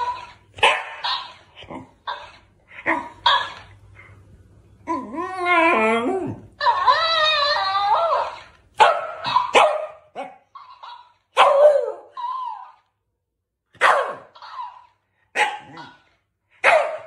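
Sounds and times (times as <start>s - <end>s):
dog barking: 0.0s - 1.4s, 8.8s - 12.0s, 13.8s - 17.0s.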